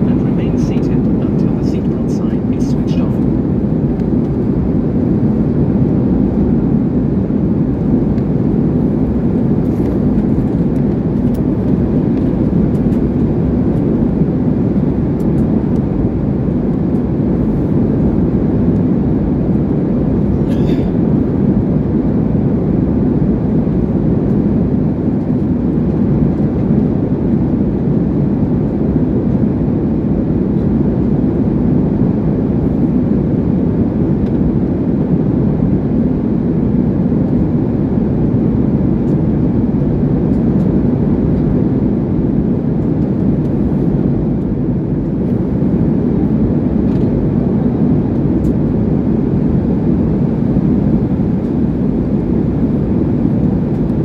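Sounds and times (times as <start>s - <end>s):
jet engine cabin roar: 0.0s - 54.0s.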